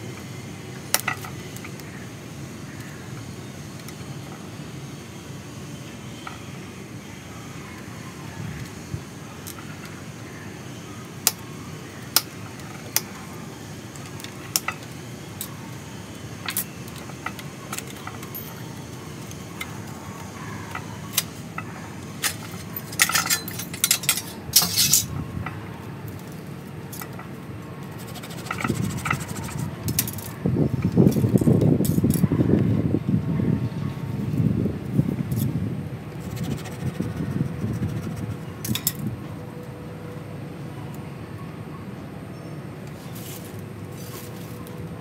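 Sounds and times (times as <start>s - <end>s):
rustling and scraping of pot: 27.9s - 29.7s, 42.9s - 44.7s.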